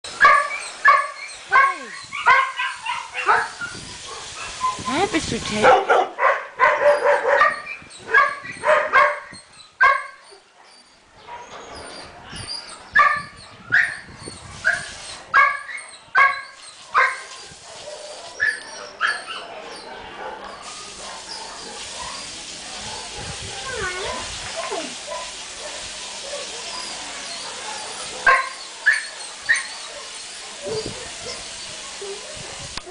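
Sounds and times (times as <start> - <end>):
dog barking: 0.2 - 4.6, 5.6 - 10.2, 14.7 - 32.7.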